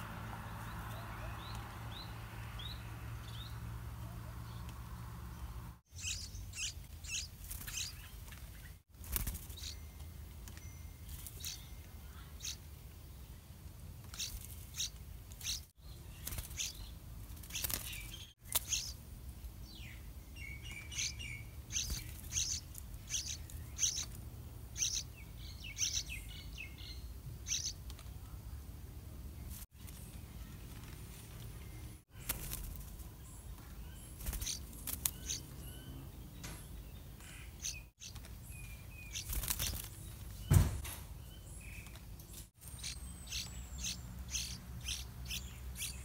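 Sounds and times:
bird nestling begging chirps: 0:05.9 - 0:08.1, 0:14.1 - 0:16.8, 0:17.5 - 0:19.0, 0:20.5 - 0:26.8, 0:27.4 - 0:27.8, 0:34.0 - 0:36.6, 0:37.2 - 0:39.8, 0:42.7 - 0:46.0.

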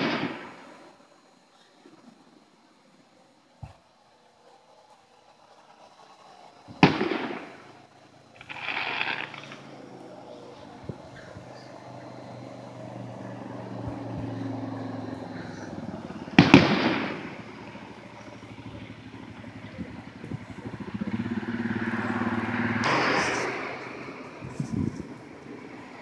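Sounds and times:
firework bang: 0:00.0 - 0:00.6, 0:06.7 - 0:07.8, 0:08.4 - 0:09.7, 0:15.6 - 0:21.1, 0:22.7 - 0:25.5
vehicle engines humming: 0:00.0 - 0:26.0.

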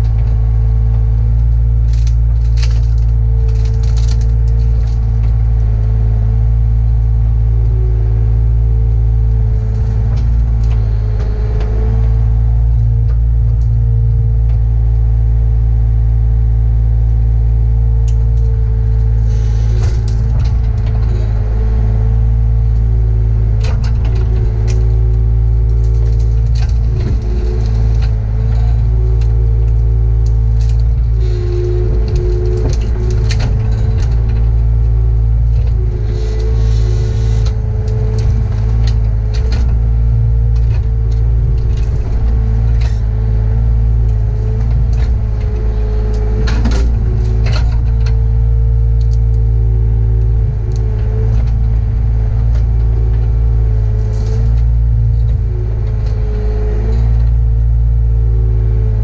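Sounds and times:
brush cracking and clattering: 0:00.0 - 0:06.2, 0:18.0 - 0:57.5
excavator engine and hydraulics whine: 0:00.0 - 0:59.0.

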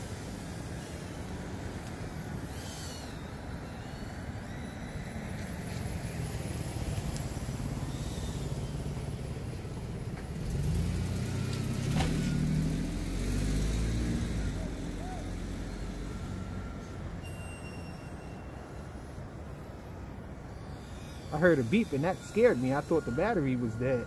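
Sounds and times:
road traffic: 0:00.0 - 0:24.0
vehicle passing with low rumble: 0:04.2 - 0:17.2.

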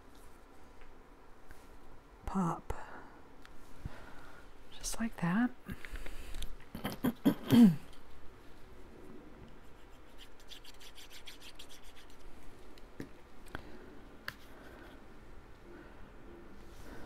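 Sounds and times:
cardstock rubbing on ink pad: 0:09.7 - 0:12.2.

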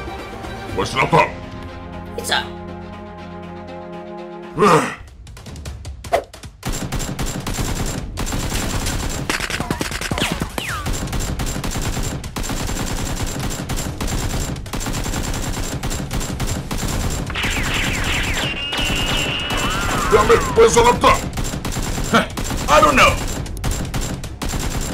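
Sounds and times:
automatic gunfire: 0:06.6 - 0:24.9.

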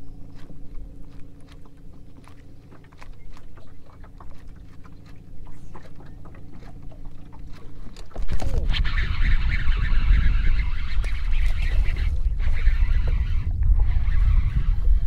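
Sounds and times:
electric trolling motor humming: 0:00.0 - 0:15.0.

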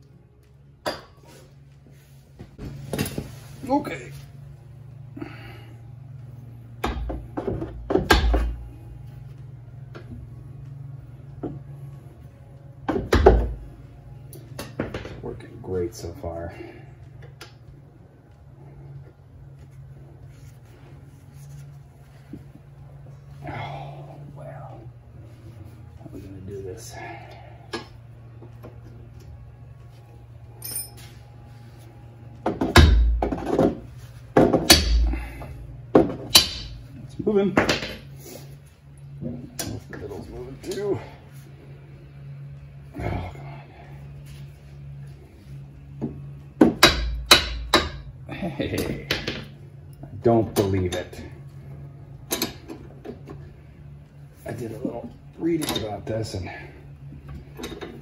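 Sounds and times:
light metallic clink: 0:30.6 - 0:31.0
hammer striking metal wrench: 0:34.7 - 0:35.2, 0:36.3 - 0:36.8, 0:46.8 - 0:48.1.

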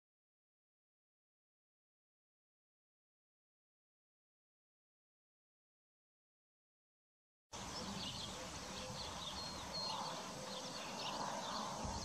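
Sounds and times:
outdoor hiss: 0:07.6 - 0:11.0
small birds chirping: 0:07.6 - 0:12.0.

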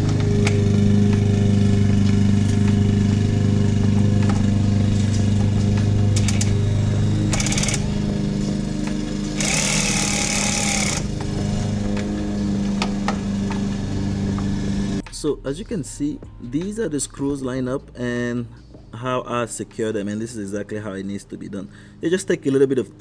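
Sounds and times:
steady low hum: 0:00.0 - 0:20.5
cordless drill driving screws: 0:06.1 - 0:08.1, 0:08.9 - 0:12.0.

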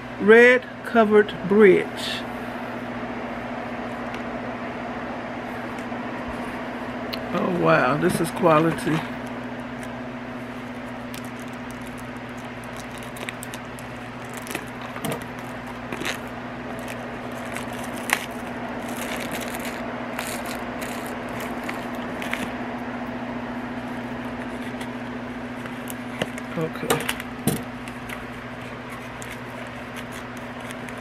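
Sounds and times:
steady low hum: 0:00.0 - 0:31.0
packaging clicks and rustles: 0:10.5 - 0:22.5, 0:25.8 - 0:31.0.

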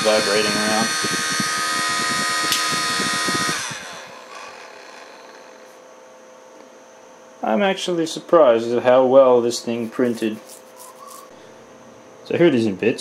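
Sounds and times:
small motor high whine: 0:00.0 - 0:07.4.

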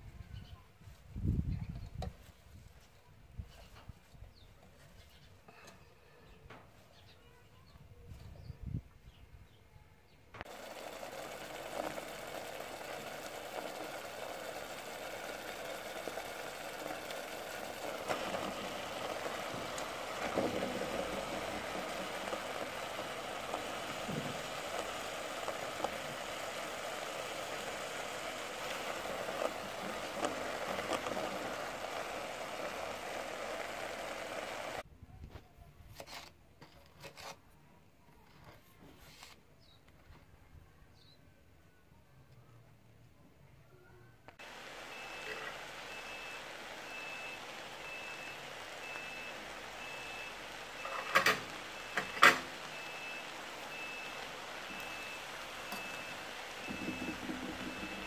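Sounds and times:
greens hissing in a hot pot: 0:10.5 - 0:34.8, 0:44.4 - 0:58.0.

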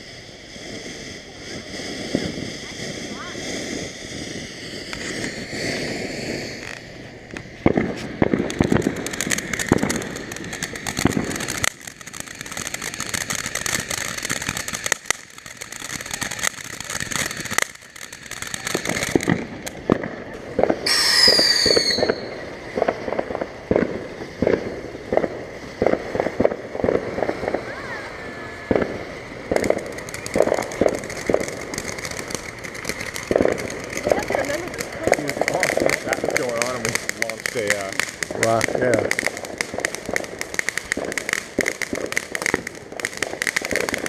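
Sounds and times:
firework crackling pops: 0:00.0 - 0:44.0
ground fountain fireworks hissing: 0:00.0 - 0:44.0
high falling whistle: 0:20.8 - 0:22.5.

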